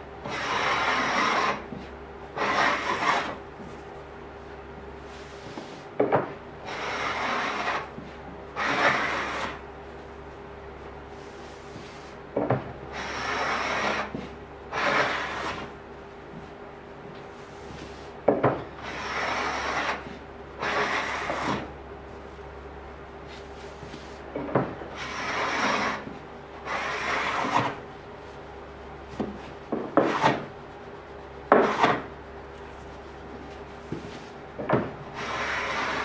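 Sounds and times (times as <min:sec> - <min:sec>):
hand plane rasping on wood: 0:00.2 - 0:01.8, 0:02.4 - 0:03.4, 0:06.7 - 0:08.0, 0:08.6 - 0:09.6, 0:12.9 - 0:15.7, 0:18.8 - 0:21.6, 0:24.9 - 0:27.8, 0:30.0 - 0:30.4, 0:31.5 - 0:32.0, 0:35.2 - 0:36.0.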